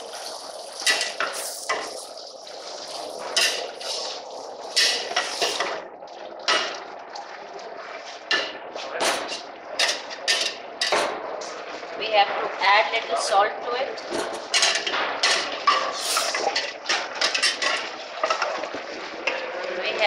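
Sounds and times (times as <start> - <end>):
steady hiss: 0.0 - 5.7.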